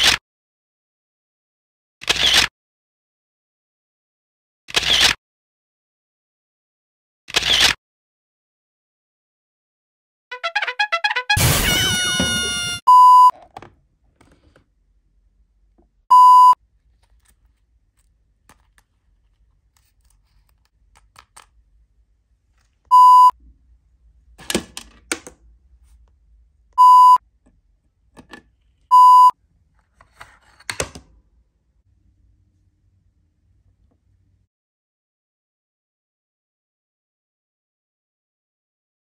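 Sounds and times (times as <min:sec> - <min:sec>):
censor bleeps: 0:12.9 - 0:13.4, 0:16.1 - 0:16.6, 0:22.9 - 0:23.3, 0:26.8 - 0:27.2, 0:28.9 - 0:29.3.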